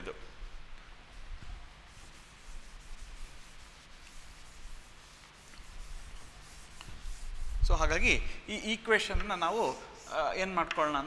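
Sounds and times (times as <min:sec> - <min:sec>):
duster rubbing on chalkboard: 0:00.5 - 0:08.3, 0:09.1 - 0:10.9.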